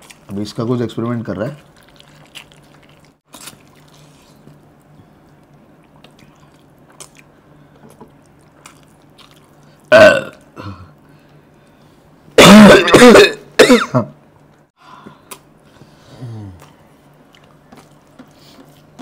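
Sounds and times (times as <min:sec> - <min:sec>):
low steady hum: 0:00.0 - 0:19.0
wet chewing: 0:01.4 - 0:10.5
man coughing: 0:12.4 - 0:14.2.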